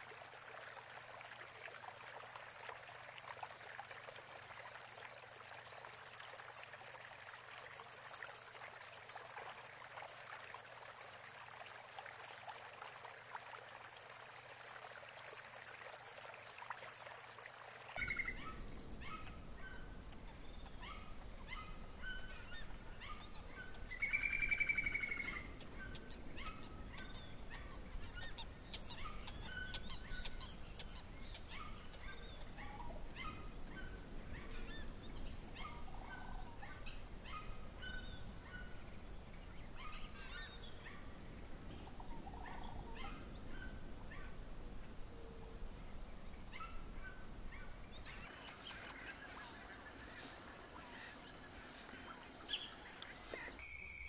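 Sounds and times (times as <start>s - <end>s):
high insect drone: 0.0s - 20.2s, 48.3s - 54.0s
bird chirps: 13.8s - 19.2s, 24.0s - 27.2s, 48.1s - 54.0s.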